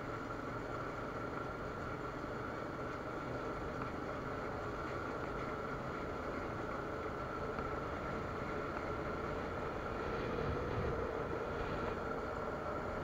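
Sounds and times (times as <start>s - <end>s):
atv engine running: 0.0s - 13.0s
wind noise: 8.8s - 13.0s.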